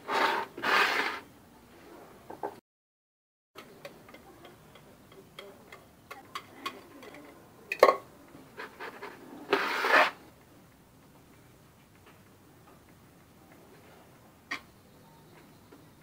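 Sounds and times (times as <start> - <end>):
metal tray scraping on stone: 0.0 - 1.3, 8.6 - 10.2.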